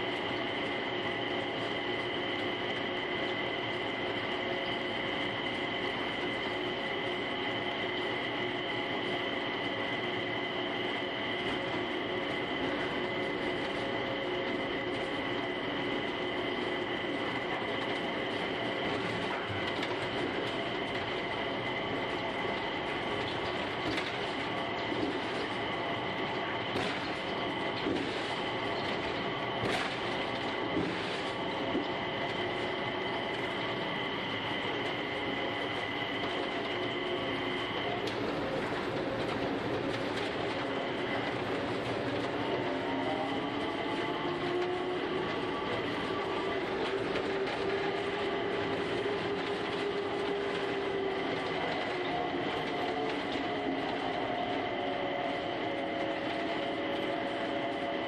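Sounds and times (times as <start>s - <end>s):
constant high whine: 0.0s - 58.0s
train running rumble: 0.0s - 58.0s
rolling noise on rubber tyres: 11.4s - 58.0s.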